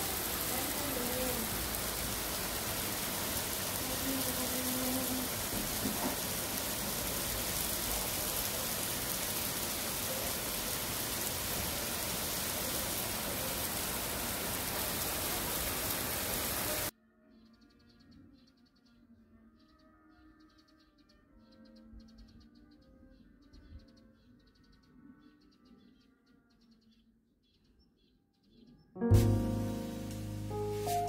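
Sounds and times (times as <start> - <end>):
heavy rain pouring: 0.0 - 16.9, 29.1 - 31.0.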